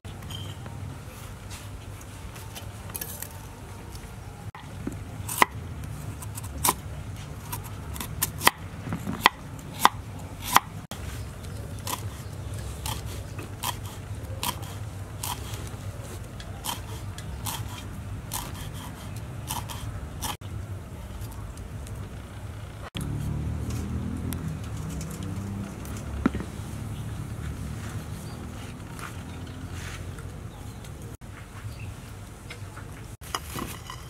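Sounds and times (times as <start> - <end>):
cleaver chopping on wooden board: 7.5 - 10.7.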